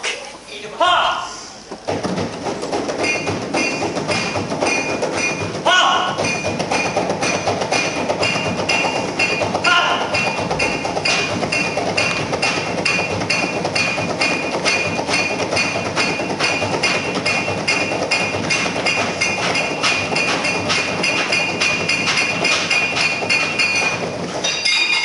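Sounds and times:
music with a steady beat: 6.2 - 24.1.

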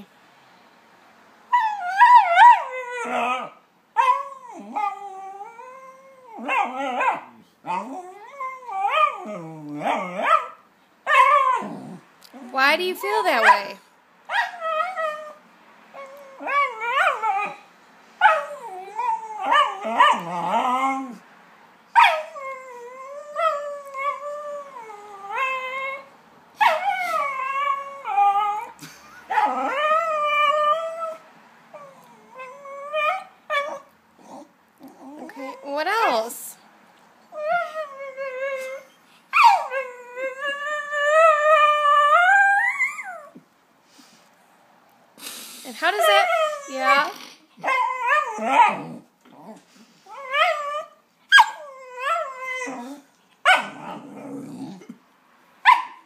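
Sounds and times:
small dog whining howls: 1.5 - 11.7, 16.0 - 17.6, 22.0 - 31.2, 37.3 - 43.4, 46.0 - 49.0, 50.1 - 54.3.

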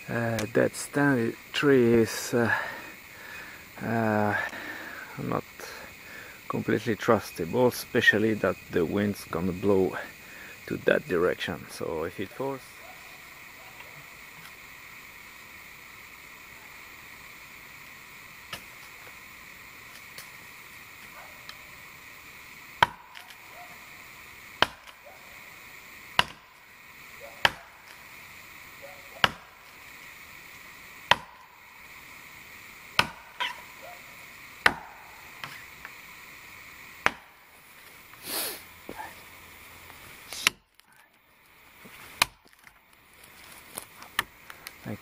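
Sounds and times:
axe chopping into tree trunk: 18.5 - 18.7, 22.8 - 23.4, 24.6 - 25.0, 26.1 - 26.5, 27.4 - 27.8, 29.2 - 29.6, 31.1 - 31.5, 32.9 - 33.6, 34.6 - 35.6, 37.0 - 37.4, 40.4 - 40.6, 42.1 - 42.6.

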